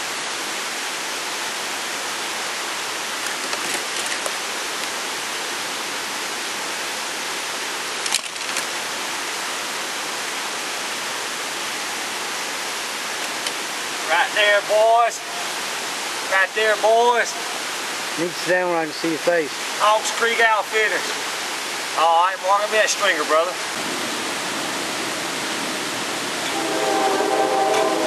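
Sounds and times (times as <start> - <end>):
steady hiss: 0.0 - 28.0.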